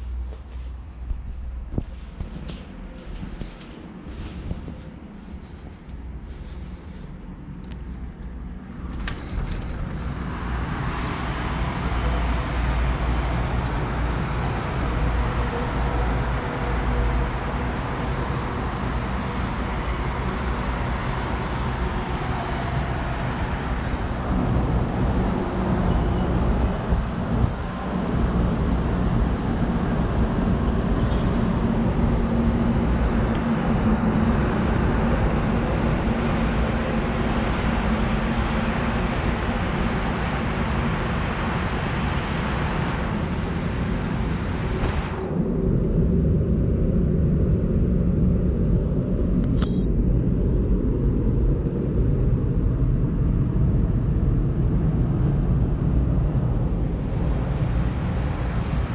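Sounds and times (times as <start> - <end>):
distant road traffic: 0.0 - 45.8, 55.9 - 58.9.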